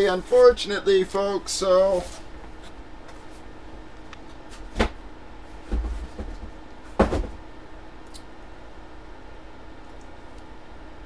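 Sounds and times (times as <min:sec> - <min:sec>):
dull thump: 0:07.0 - 0:07.4.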